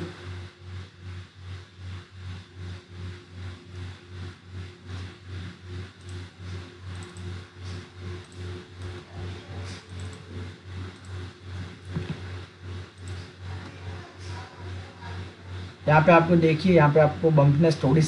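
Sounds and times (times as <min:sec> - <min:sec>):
pulsing low mechanical hum: 0:00.0 - 0:18.0.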